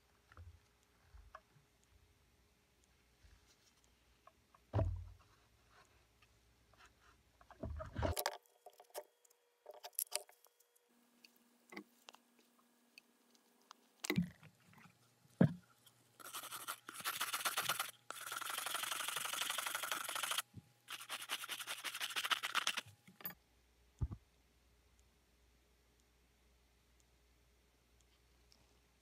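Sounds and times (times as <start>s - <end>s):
stiff brush scrubbing plastic: 16.2s - 22.9s.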